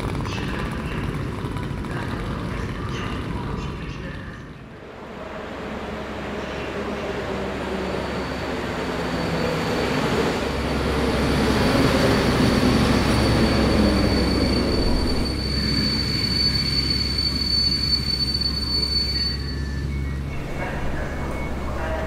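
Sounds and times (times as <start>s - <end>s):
train wheels rumbling: 0.0s - 22.0s
high-pitched wheel squeal: 7.6s - 10.5s, 12.2s - 22.0s.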